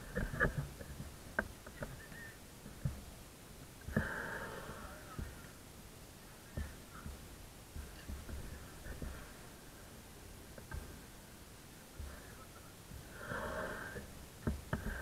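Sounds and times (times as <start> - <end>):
distant voices: 0.0 - 15.0.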